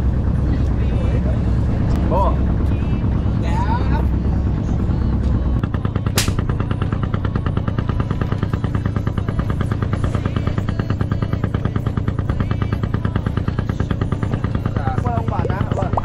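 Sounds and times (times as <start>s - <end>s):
boat engine chugging: 0.0s - 16.0s
sharp click: 6.2s - 6.4s.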